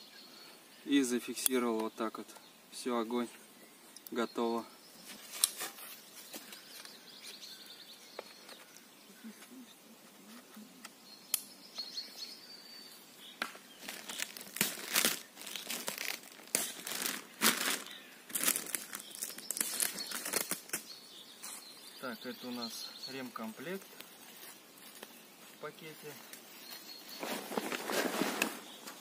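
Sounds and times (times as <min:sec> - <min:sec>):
bird chirping: 0:00.0 - 0:29.0
plastic packaging crinkling: 0:13.8 - 0:20.9.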